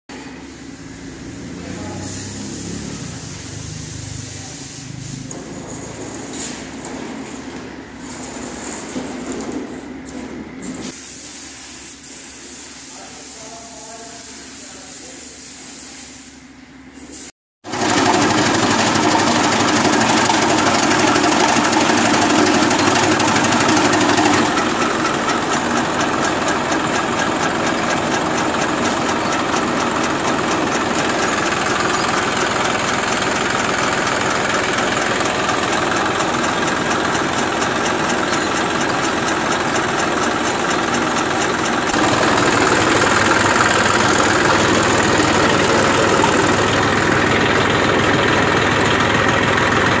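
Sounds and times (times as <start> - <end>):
chaff cutter chopping fodder: 17.6 - 31.3, 41.0 - 47.4
tractor engine running: 17.6 - 50.0.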